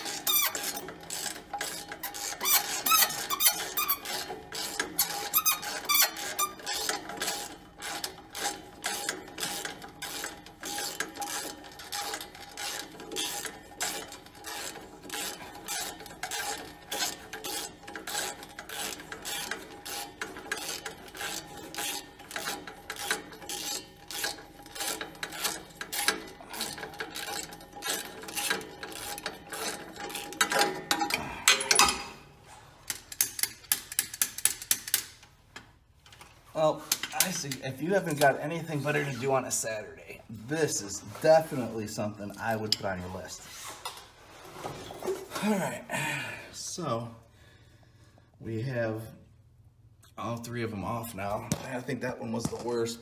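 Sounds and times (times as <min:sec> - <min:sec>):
ratchet wrench clicking: 0:00.0 - 0:32.0, 0:32.9 - 0:35.3.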